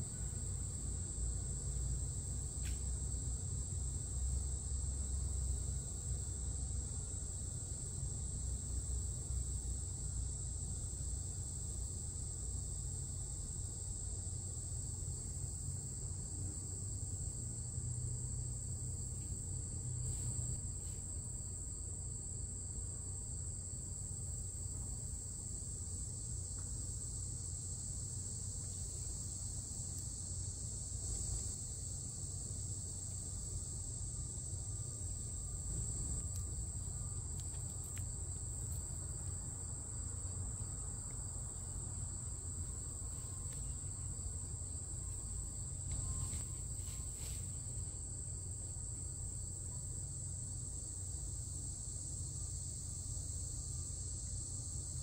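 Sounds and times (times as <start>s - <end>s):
high-pitched insect chorus trilling: 0.0s - 55.0s.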